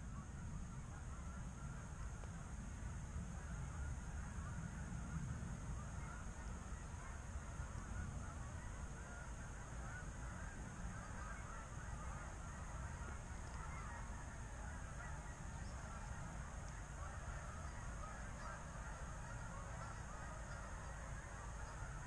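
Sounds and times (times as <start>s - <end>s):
geese honking: 5.7s - 22.0s.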